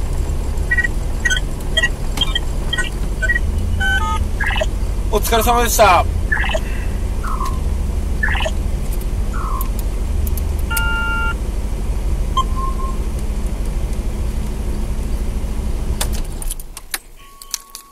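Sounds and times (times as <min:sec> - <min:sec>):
car engine and road noise: 0:00.0 - 0:17.9
electronic beep: 0:00.7 - 0:04.8, 0:06.3 - 0:08.6, 0:09.3 - 0:09.7, 0:10.7 - 0:11.4.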